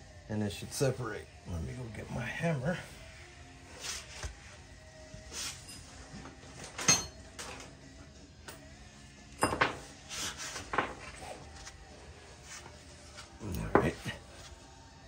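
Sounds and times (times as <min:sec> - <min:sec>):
metal hand tools clanking: 0:06.8 - 0:07.5.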